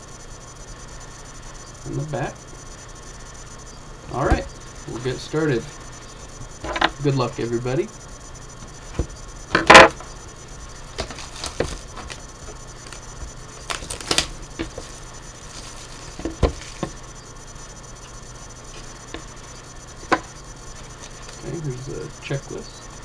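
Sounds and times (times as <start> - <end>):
plastic wrap crinkling and tearing: 10.9 - 12.2, 13.6 - 16.8.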